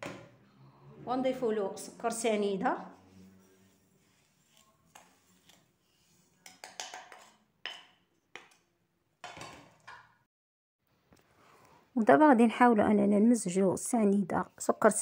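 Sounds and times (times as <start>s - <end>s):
spatula scraping sugar off plate: 3.0s - 8.0s.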